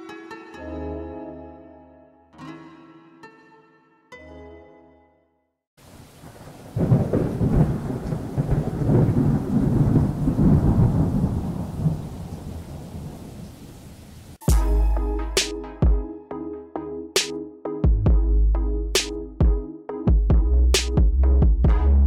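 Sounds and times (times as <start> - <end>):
heavy rain hiss: 5.8 - 8.5
thunder rumbling: 5.8 - 14.4
electronic music with a beat: 14.4 - 22.0.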